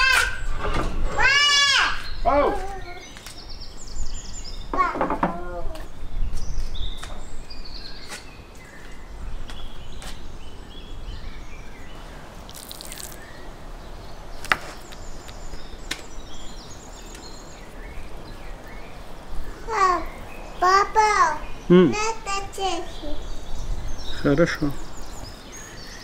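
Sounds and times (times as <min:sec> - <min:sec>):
birds chirping: 0:00.0 - 0:26.0.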